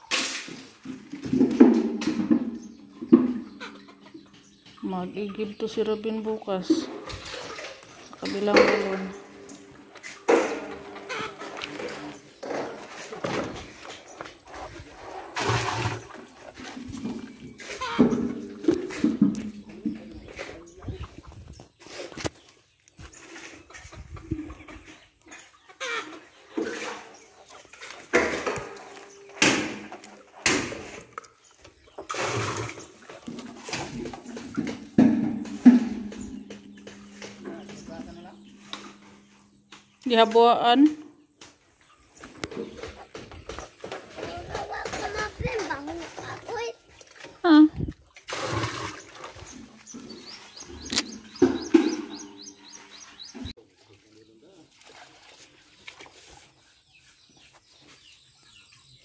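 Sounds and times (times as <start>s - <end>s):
bucket splashing in well water: 0.0s - 4.0s, 6.8s - 20.8s, 25.9s - 39.4s, 42.2s - 56.6s
small birds chirping: 2.1s - 10.2s, 11.0s - 29.4s, 31.1s - 48.1s, 48.8s - 59.0s
sharp knocks: 34.0s - 40.6s.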